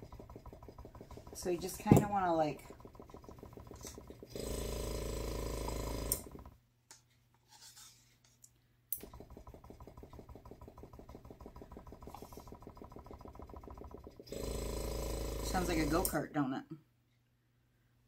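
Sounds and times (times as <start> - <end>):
airbrush compressor pulsing chug: 0.0 - 6.6, 9.0 - 16.2.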